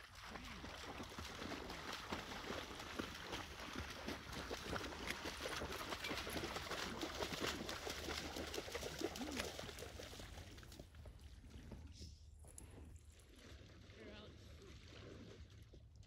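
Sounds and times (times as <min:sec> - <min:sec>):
dog splashing through water: 0:00.0 - 0:11.7.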